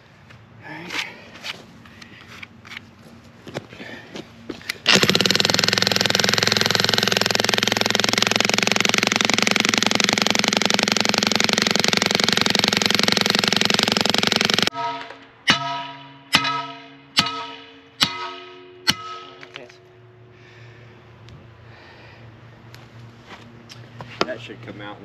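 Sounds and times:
jackhammer hammering rock: 0:04.8 - 0:19.6.

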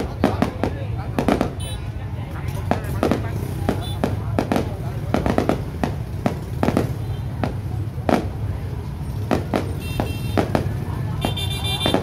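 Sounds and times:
fireworks bangs: 0:00.0 - 0:02.0, 0:02.6 - 0:12.0.

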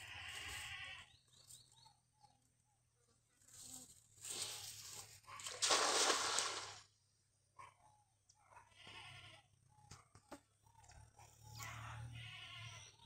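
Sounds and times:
net splashing on water: 0:05.4 - 0:06.9.

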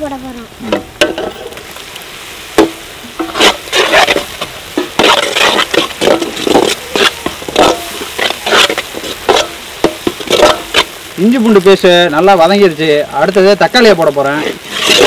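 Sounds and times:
onions sizzling in oil: 0:00.0 - 0:15.0
spatula scraping pan: 0:02.6 - 0:11.0, 0:14.4 - 0:15.0.

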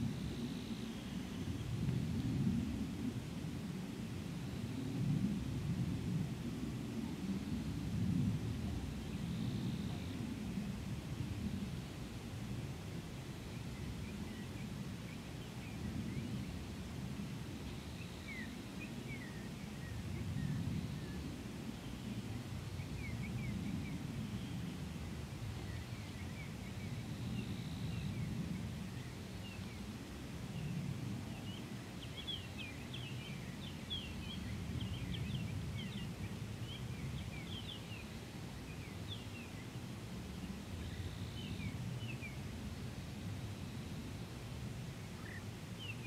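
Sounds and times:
small birds chirping: 0:45.2 - 0:46.0.

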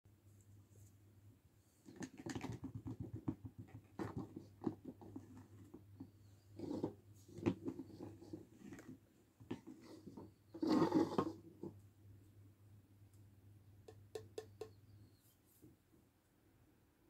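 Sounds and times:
fingers tapping plastic toys: 0:13.8 - 0:14.8.

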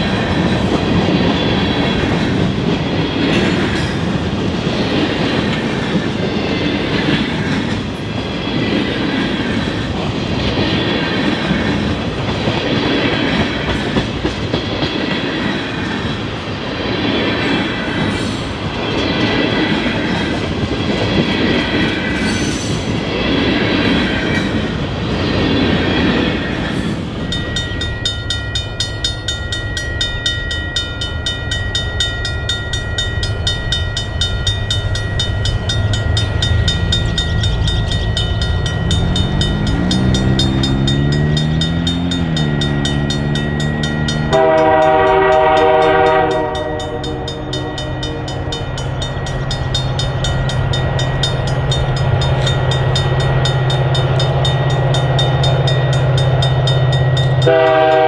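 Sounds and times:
train wheels rumbling and clacking: 0:00.0 - 0:58.0
pulsing high ringing tones: 0:27.2 - 0:58.0.

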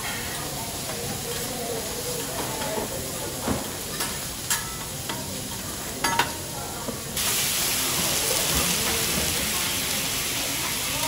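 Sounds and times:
food sizzling on a griddle: 0:00.0 - 0:11.0
metal spatula clinking on hot plate: 0:03.9 - 0:06.4.

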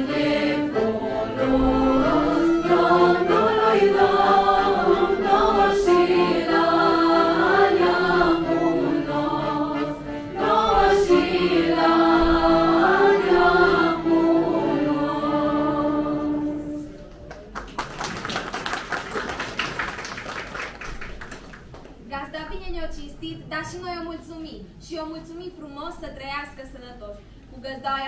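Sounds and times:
group singing unaccompanied: 0:00.0 - 0:16.8
applause: 0:17.1 - 0:22.1.

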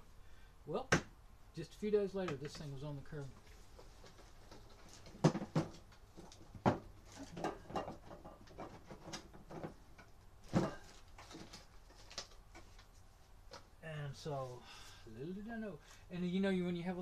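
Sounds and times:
hard objects knocking and clattering: 0:03.8 - 0:12.7.

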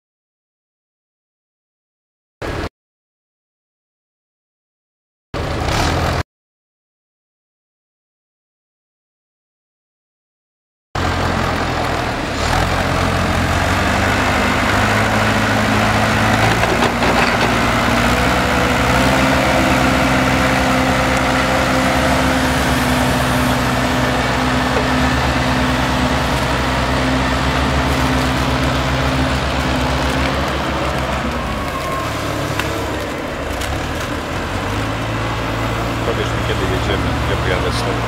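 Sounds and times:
heavy diesel engines running: 0:11.0 - 0:38.0.

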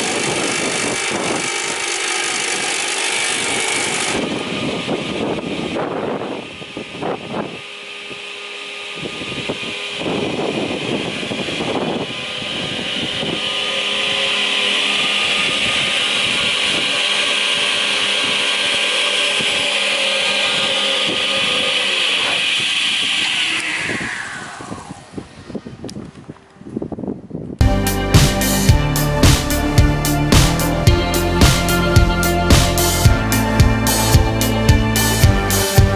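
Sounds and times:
woodworking machine whine and hum: 0:00.0 - 0:35.9
rushing swells: 0:10.8 - 0:25.9.

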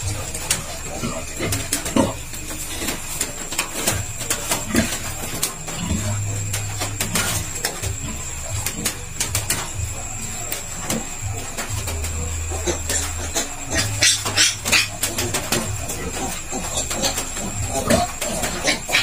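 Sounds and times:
high-pitched whine: 0:00.0 - 0:19.0.

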